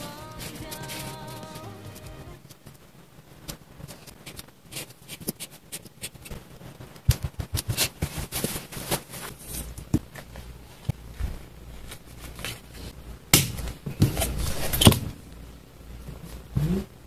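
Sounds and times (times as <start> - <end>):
paper and stickers shifting: 0.0 - 2.1.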